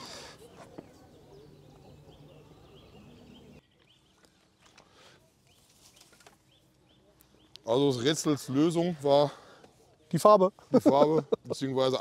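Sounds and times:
small bird chirping: 0.2s - 7.8s.

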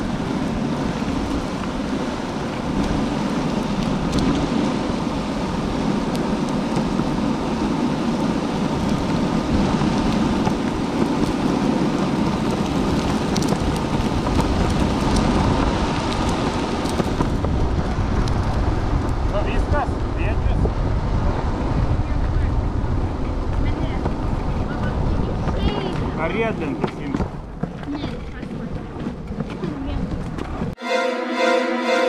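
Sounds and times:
skateboard wheels rolling on pavement: 0.0s - 30.8s.

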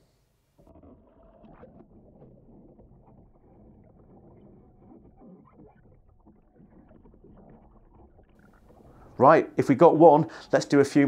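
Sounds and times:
underwater water swishing and bubbling: 0.6s - 11.0s.

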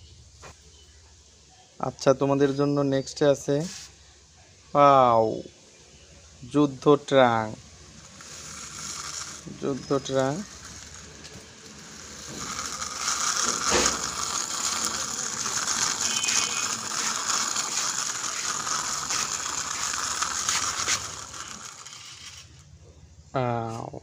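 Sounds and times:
toy wheels grinding on concrete: 6.5s - 22.8s.

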